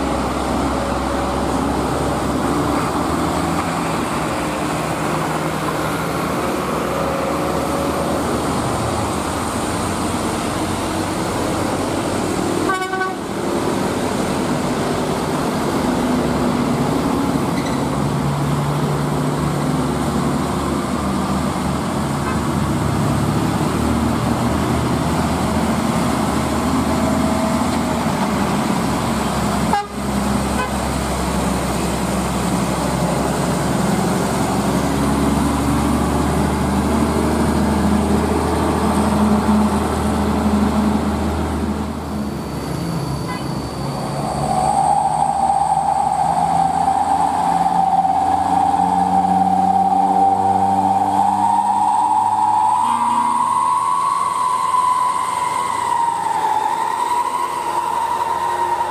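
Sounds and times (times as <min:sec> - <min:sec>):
diesel truck engine labouring: 0:00.0 - 0:58.9
traffic: 0:00.0 - 0:58.9
vehicle horn long note: 0:12.6 - 0:13.3, 0:29.7 - 0:30.0, 0:30.6 - 0:30.8, 0:52.8 - 0:53.6.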